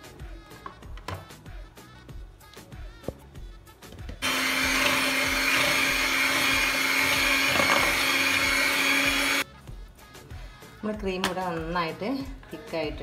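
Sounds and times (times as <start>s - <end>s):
electric hand mixer whirring: 4.2s - 9.4s.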